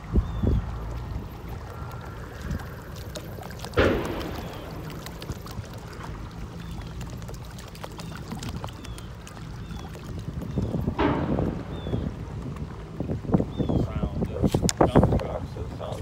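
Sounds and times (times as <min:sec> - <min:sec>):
water lapping against boat hull: 0:00.0 - 0:16.0
low rumble: 0:10.6 - 0:14.2.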